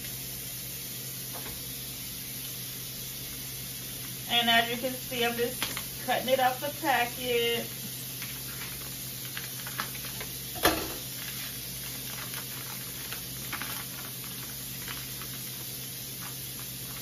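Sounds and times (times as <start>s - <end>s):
kitchen tap running: 1.2s - 17.0s
plastic packaging crinkling: 5.2s - 6.8s, 8.0s - 17.0s.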